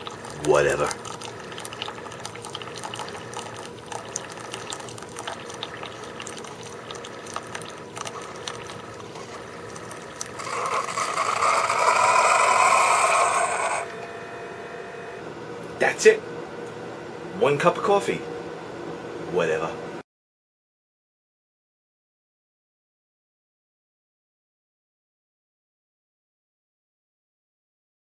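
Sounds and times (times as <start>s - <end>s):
coffee trickling into cup: 0.0s - 14.1s
coffee maker running: 0.0s - 16.2s.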